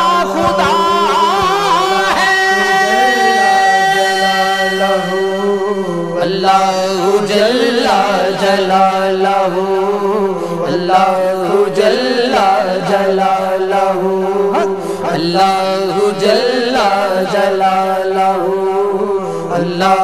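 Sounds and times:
steady low drone: 0.0s - 7.4s
men singing a hymn: 0.0s - 20.0s.

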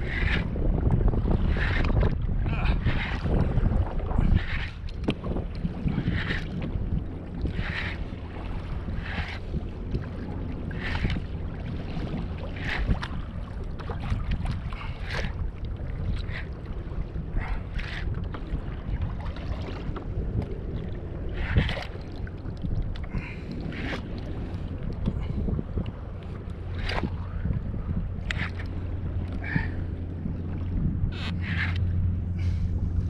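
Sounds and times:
water splashing against kayak hull: 0.0s - 33.0s
wind rumbling on microphone: 0.0s - 33.0s.

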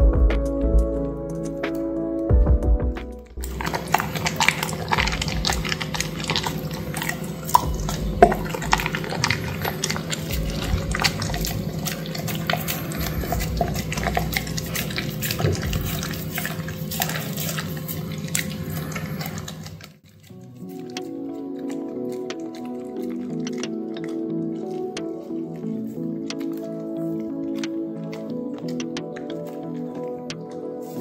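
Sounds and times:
steady low hum: 3.2s - 27.0s
dog crunching broccoli: 3.4s - 31.0s.

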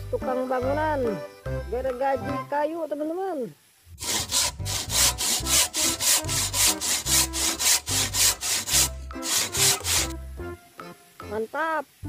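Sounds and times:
hand saw cutting wood: 4.0s - 10.2s.

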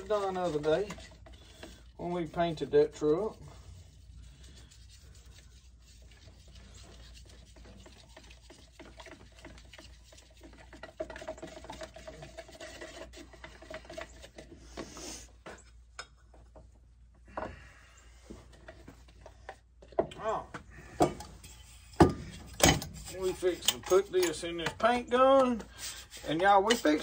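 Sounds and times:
stick scraping plastic bucket: 0.0s - 15.4s, 21.0s - 27.0s.

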